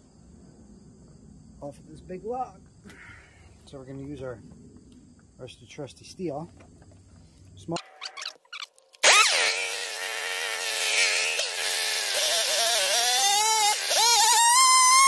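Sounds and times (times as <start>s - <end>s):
chainsaw engine revving: 9.0s - 15.0s.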